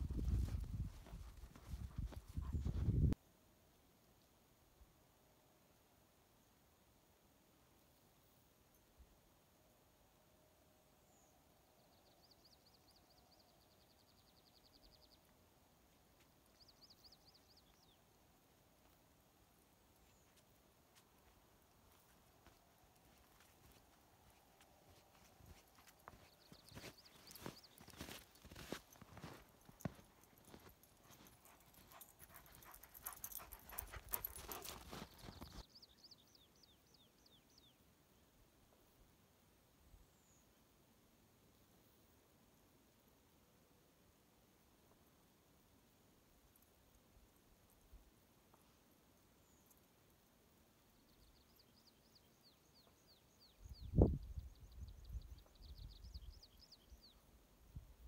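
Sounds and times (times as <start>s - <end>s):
footsteps crunching in snow: 0.0s - 3.1s, 20.2s - 35.6s.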